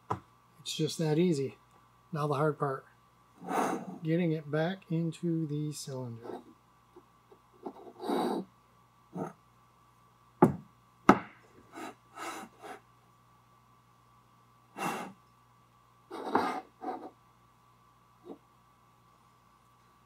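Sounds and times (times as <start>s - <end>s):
sharp knocks on workbench: 10.4s - 11.4s.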